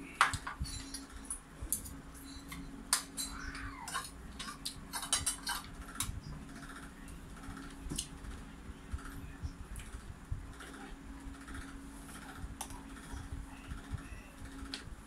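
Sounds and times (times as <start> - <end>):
cutlery clicking against a dish: 0.2 - 6.2.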